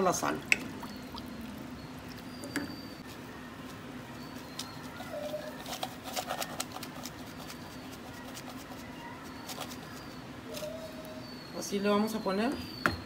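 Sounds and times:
low steady hum: 0:00.0 - 0:05.4.

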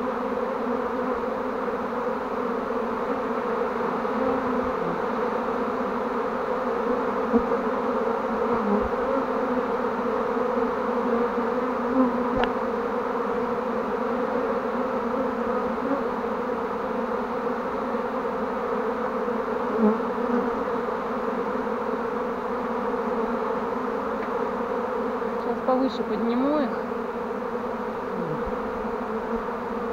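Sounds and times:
bee swarm buzzing: 0:00.0 - 0:29.9.

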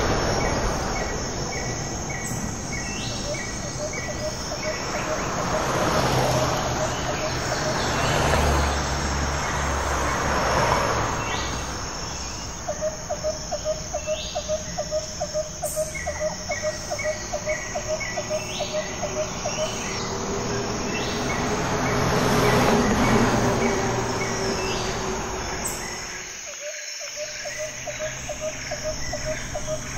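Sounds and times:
traffic passing: 0:00.0 - 0:29.9
rhythmic chirping: 0:01.6 - 0:05.6.

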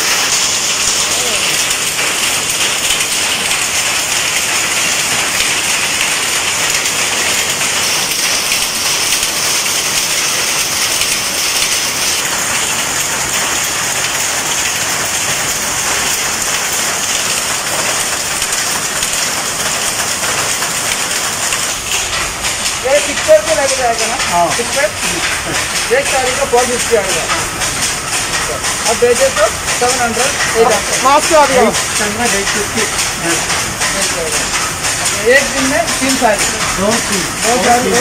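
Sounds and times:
power looms clattering: 0:00.0 - 0:38.0.

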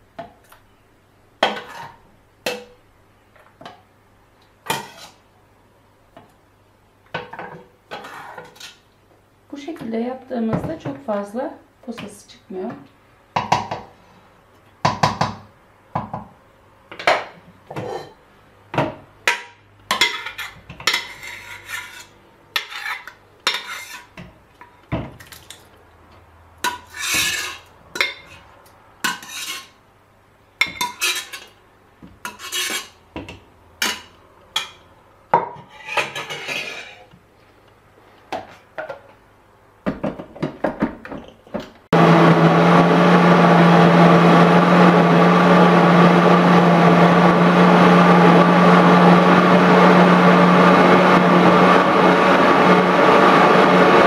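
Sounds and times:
utensil scraping blender jar: 0:20.1 - 0:24.1
blender motor running: 0:42.0 - 0:54.0.

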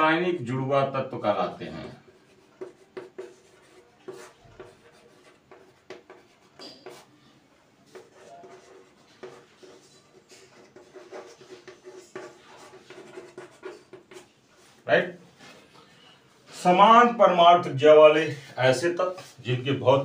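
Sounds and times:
chalk tapping and scratching: 0:01.7 - 0:07.2, 0:07.8 - 0:14.8.

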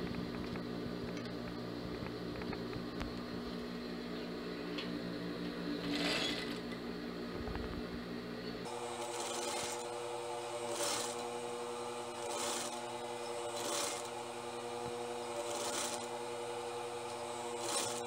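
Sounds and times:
sewing machine motor humming: 0:08.7 - 0:18.0.

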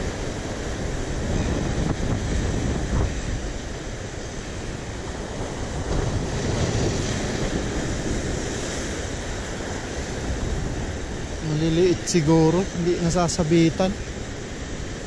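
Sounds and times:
wind noise on microphone: 0:00.0 - 0:11.4
surf washing on rocky shore: 0:00.0 - 0:15.0.

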